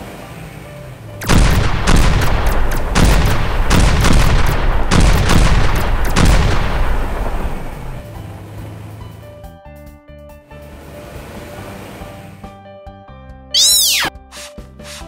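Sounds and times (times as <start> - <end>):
background music: 0.0 - 15.0
cartoon gunshots: 1.2 - 7.9, 13.6 - 14.5
explosion booms: 1.2 - 7.9.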